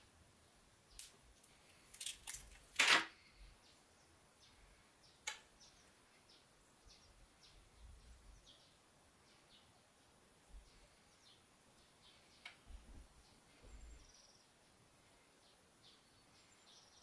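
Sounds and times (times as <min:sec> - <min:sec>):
protective film rustling: 0:01.0 - 0:03.1.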